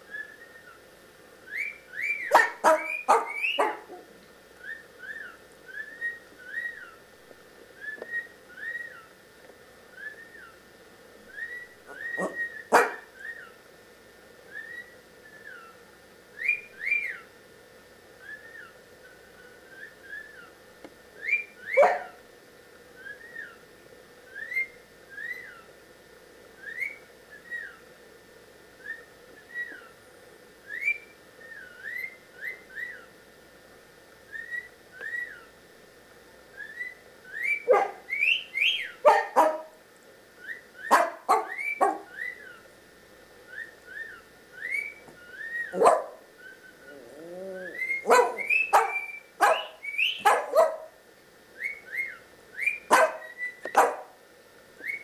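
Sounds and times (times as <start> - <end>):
sharp cockatiel calls: 1.5 - 3.9, 11.4 - 13.6, 36.6 - 39.7, 40.4 - 42.6, 47.7 - 51.0, 51.6 - 53.9
cockatiel whistling: 11.4 - 13.5, 40.4 - 42.6, 43.5 - 46.8, 47.6 - 50.7, 51.6 - 53.8, 54.8 - 55.0.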